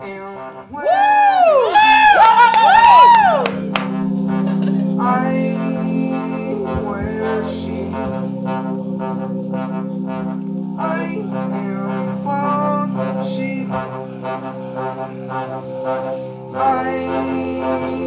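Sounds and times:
big band horn section: 0:00.0 - 0:18.0.

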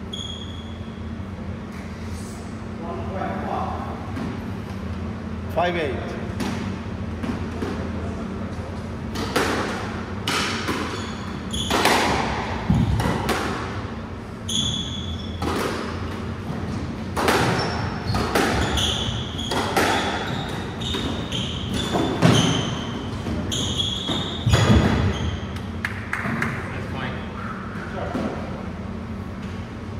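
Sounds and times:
sneaker squeaks on wooden floor: 0:00.0 - 0:01.1, 0:10.6 - 0:13.1, 0:14.4 - 0:16.1, 0:17.4 - 0:25.6
squash ball hitting rackets and walls: 0:06.3 - 0:26.6.

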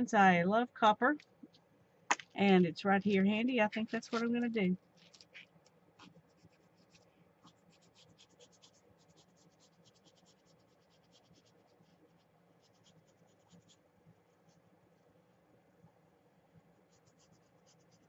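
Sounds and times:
marker tip scratching paper: 0:03.6 - 0:13.8.

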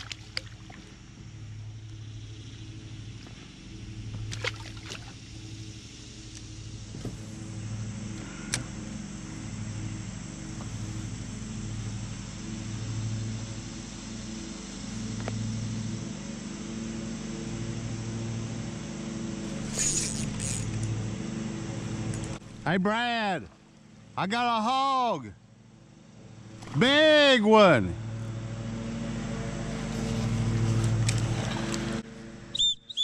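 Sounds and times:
low engine drone: 0:00.0 - 0:33.0
light rattle: 0:19.5 - 0:21.1.

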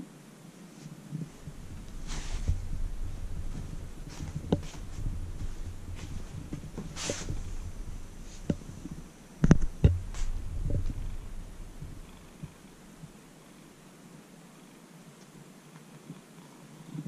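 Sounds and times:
loud thumps: 0:01.2 - 0:13.3
camera handling rumble: 0:01.4 - 0:12.5.

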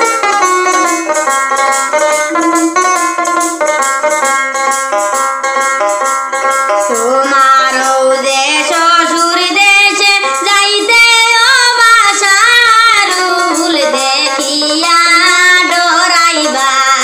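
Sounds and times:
instrumental accompaniment: 0:00.0 - 0:17.0
woman singing in high voice: 0:06.9 - 0:17.0.

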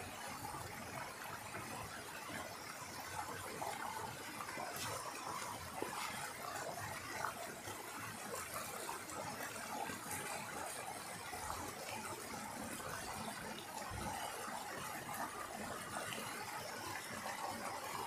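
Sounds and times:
stream rushing over rocks: 0:00.4 - 0:18.0.

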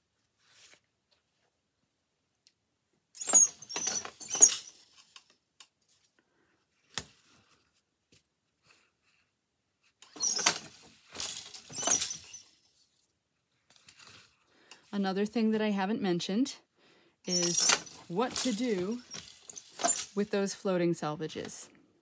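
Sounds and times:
wooden loom clattering: 0:03.2 - 0:04.8, 0:10.1 - 0:12.5, 0:17.3 - 0:20.3.

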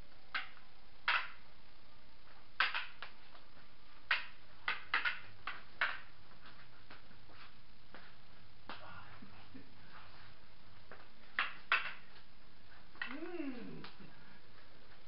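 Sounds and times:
steady background hiss: 0:00.0 - 0:15.0
sticks clacking together: 0:04.1 - 0:06.0.

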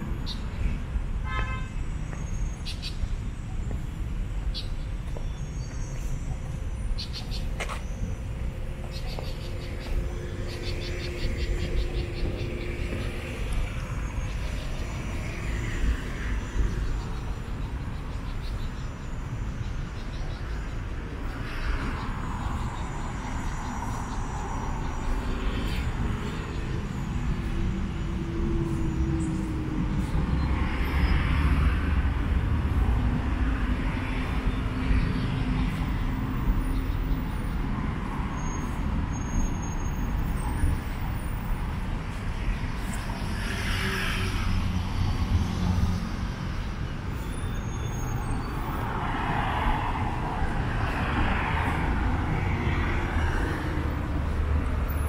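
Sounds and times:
traffic rumble: 0:00.0 - 0:55.0
vehicles passing: 0:00.0 - 0:55.0.

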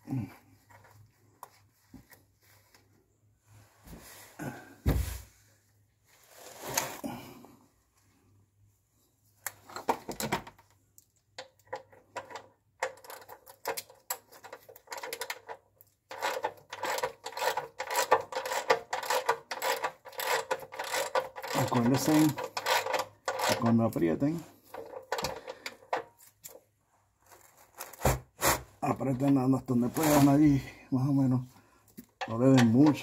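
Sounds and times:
towel scraping oil filter: 0:29.7 - 0:30.6.

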